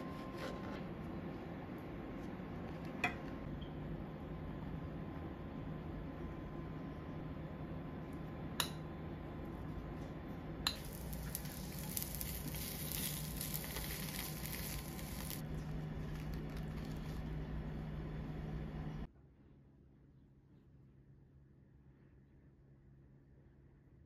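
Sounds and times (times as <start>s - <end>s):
bread sizzling in a frying pan: 10.7s - 17.6s.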